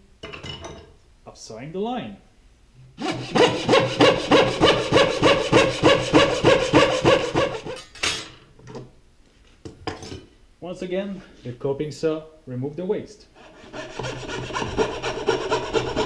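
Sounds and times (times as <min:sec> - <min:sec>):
hand saw cutting wood: 0:03.0 - 0:07.8, 0:13.4 - 0:16.0
short rasp: 0:03.0 - 0:07.8, 0:13.4 - 0:16.0.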